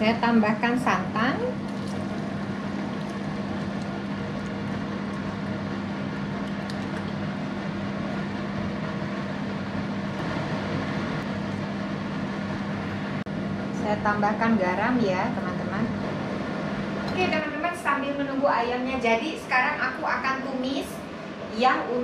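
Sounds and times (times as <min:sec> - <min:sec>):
steady low hum: 0:00.0 - 0:22.0.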